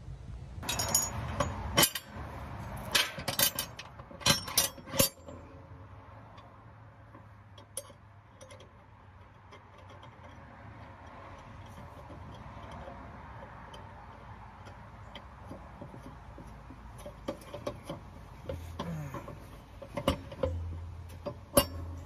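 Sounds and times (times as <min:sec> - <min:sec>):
metal blade hardware clinking: 0:00.6 - 0:02.2, 0:17.0 - 0:22.0.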